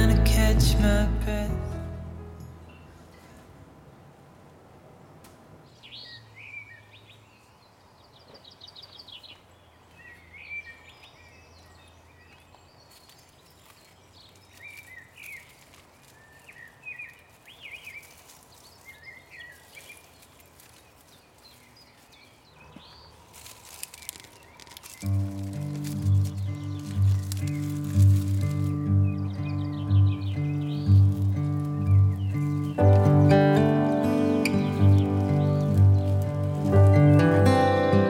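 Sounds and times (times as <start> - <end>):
birds chirping and singing: 8.2 - 38.0
rustling of plants pulled from leaves: 12.9 - 22.4, 23.0 - 37.9.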